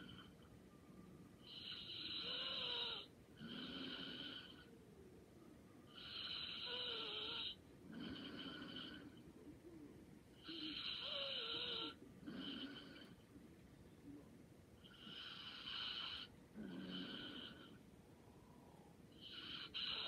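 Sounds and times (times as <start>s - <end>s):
person snoring: 1.5s - 4.7s, 5.9s - 9.2s, 10.4s - 13.2s, 14.9s - 17.8s, 19.2s - 20.0s.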